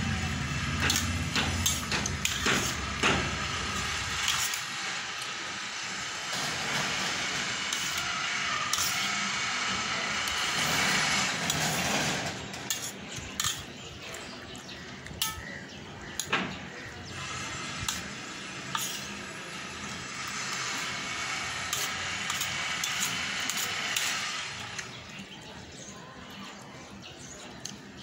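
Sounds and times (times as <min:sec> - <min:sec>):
metal spoon scraping steel plate: 0:00.8 - 0:04.8, 0:06.4 - 0:13.8, 0:15.2 - 0:16.3, 0:17.1 - 0:24.8.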